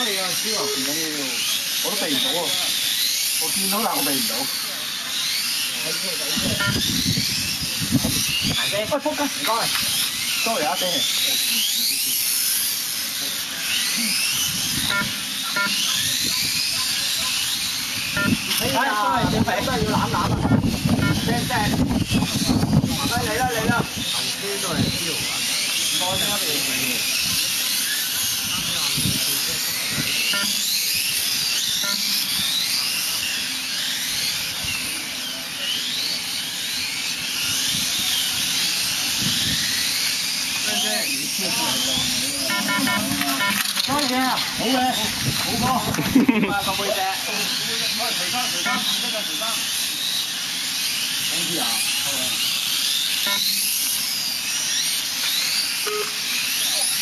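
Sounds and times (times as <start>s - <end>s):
electric motors whining: 0.0s - 57.0s
short beeps: 6.6s - 6.8s, 14.9s - 16.0s, 18.2s - 18.4s, 20.5s - 21.3s, 30.3s - 30.6s, 31.8s - 32.0s, 42.5s - 43.6s, 53.3s - 53.5s, 55.8s - 56.2s.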